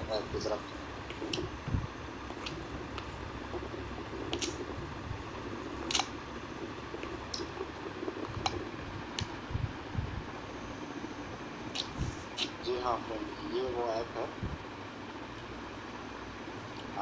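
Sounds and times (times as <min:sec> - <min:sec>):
low hum and hiss: 0:00.0 - 0:17.0
sharp clicks: 0:02.2 - 0:04.8, 0:05.6 - 0:09.4.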